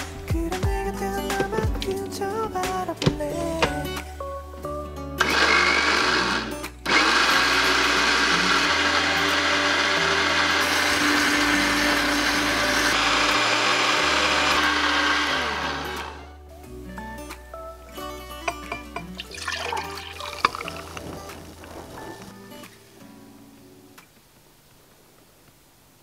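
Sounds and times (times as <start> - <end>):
blender running: 5.2 - 16.2.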